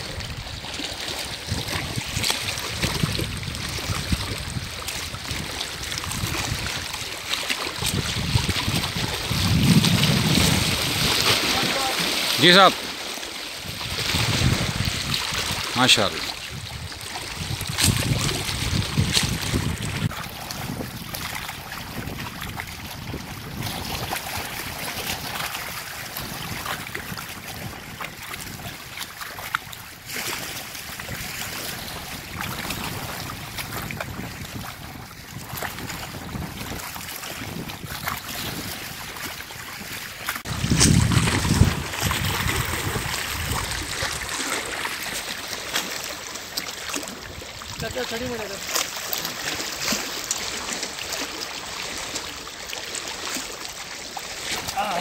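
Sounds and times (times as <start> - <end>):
wind on microphone: 0.0 - 12.0, 13.6 - 29.1, 29.7 - 45.1
water lapping against shore: 0.0 - 55.0.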